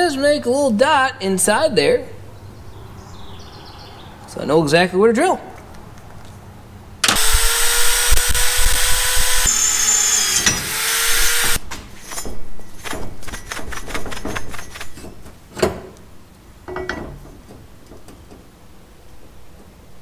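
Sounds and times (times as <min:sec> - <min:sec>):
electric drill whining: 0:07.0 - 0:11.6.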